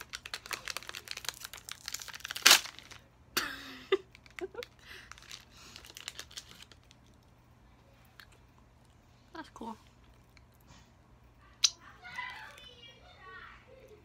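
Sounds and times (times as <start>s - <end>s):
plastic wrapper crinkling: 0.0s - 3.1s, 3.9s - 7.3s
wrapper ripping: 0.0s - 3.1s, 4.1s - 7.0s.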